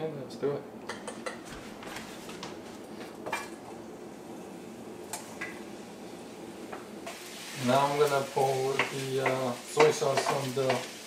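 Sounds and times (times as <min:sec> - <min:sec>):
steady faint hiss: 0:02.1 - 0:11.0.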